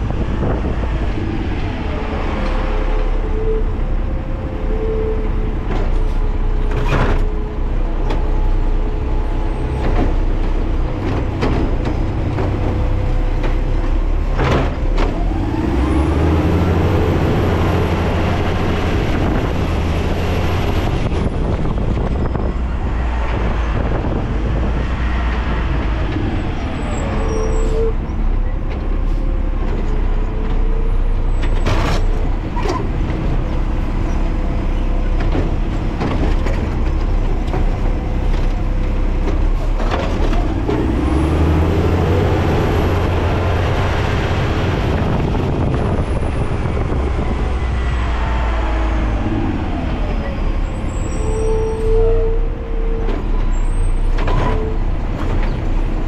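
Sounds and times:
diesel engine running: 0.0s - 56.0s
brief squeal: 26.8s - 28.0s, 50.2s - 54.8s.

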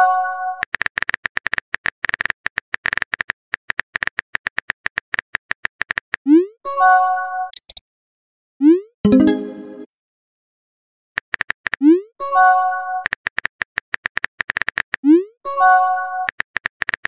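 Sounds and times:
phone keyboard clicks: 7.5s - 7.8s, 11.2s - 11.8s, 13.0s - 15.0s, 16.3s - 17.0s.

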